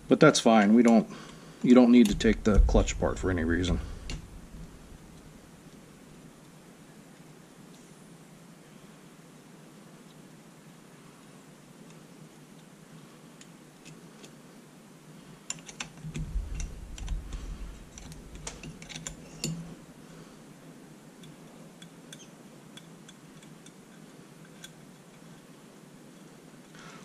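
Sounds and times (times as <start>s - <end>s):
low handling rumble: 2.0s - 5.2s, 16.1s - 18.5s.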